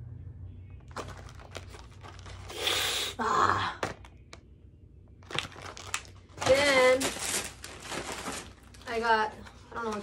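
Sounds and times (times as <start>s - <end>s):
blister packs being handled: 0.8s - 2.6s.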